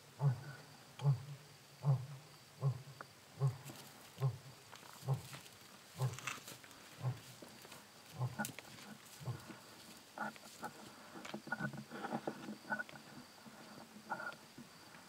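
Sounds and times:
faint insect chirring: 0:00.0 - 0:15.0
rhinoceros low grunts: 0:00.1 - 0:14.4
rhinoceros higher calls: 0:06.0 - 0:06.4.

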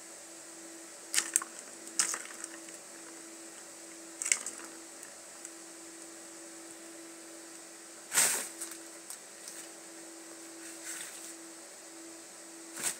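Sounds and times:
plastic ball clattering in track: 0:01.2 - 0:02.8.

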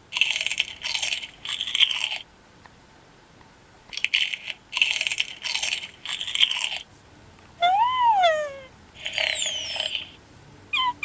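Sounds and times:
toy speaker crunchy munching: 0:00.1 - 0:02.3, 0:03.9 - 0:06.9, 0:09.0 - 0:10.2
electronic squeak: 0:09.1 - 0:10.2.

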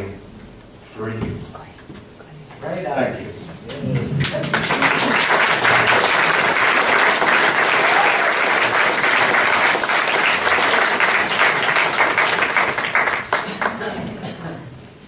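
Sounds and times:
audience applauding: 0:03.7 - 0:14.4.

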